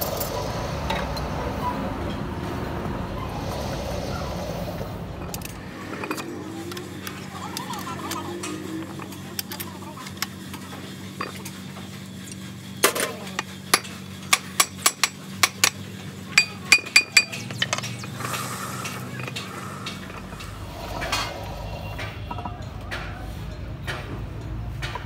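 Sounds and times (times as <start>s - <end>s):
hammer tapping on metal: 16.4s - 17.9s.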